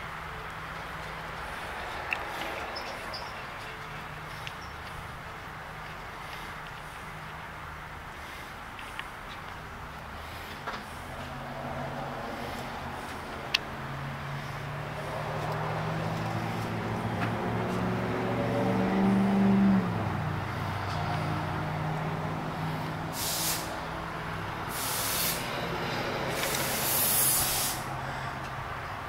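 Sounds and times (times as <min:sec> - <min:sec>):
short hisses: 0:23.2 - 0:23.8, 0:24.7 - 0:25.5, 0:26.4 - 0:27.9.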